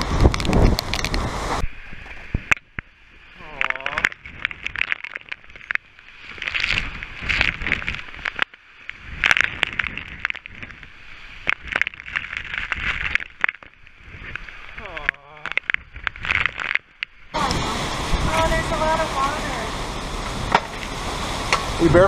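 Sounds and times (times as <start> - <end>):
raindrops tapping on camera: 0.0 - 1.6, 2.4 - 22.0
storm wind gusting: 0.0 - 2.6, 17.3 - 22.0.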